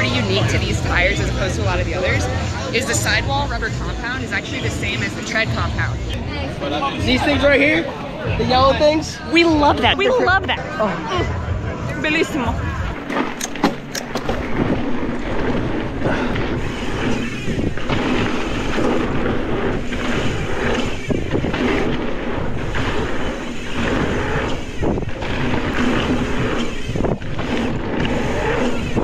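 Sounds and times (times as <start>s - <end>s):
wind buffeting microphone: 11.4s - 29.0s.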